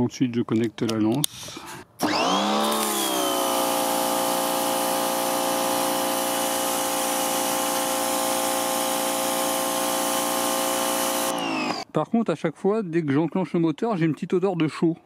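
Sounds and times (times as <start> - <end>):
pressure washer motor and pump: 2.0 - 11.8.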